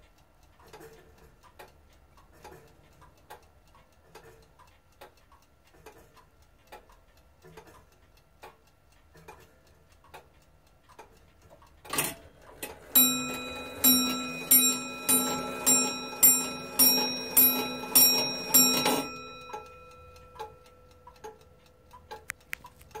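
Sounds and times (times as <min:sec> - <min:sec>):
wall clock ticking: 0:00.0 - 0:23.0
clock hammer striking bell: 0:12.9 - 0:20.9.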